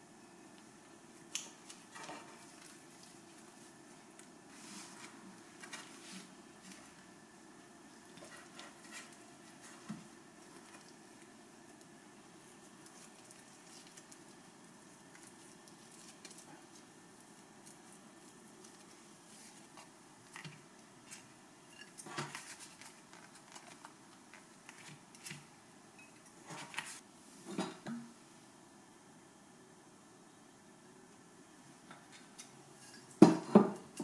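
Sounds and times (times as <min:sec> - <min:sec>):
hands shaping dough: 0:00.5 - 0:27.0.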